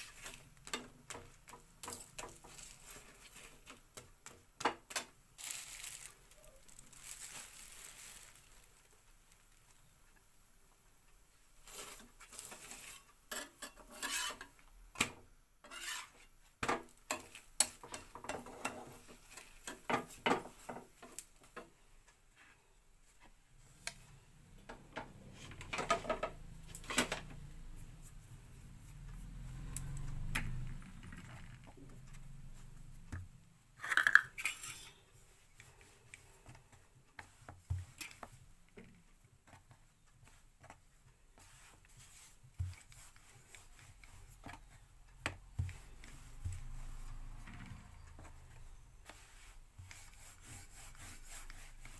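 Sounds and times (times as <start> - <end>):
metal spatula scraping iron griddle: 11.7 - 14.5, 15.6 - 16.3, 34.0 - 35.1.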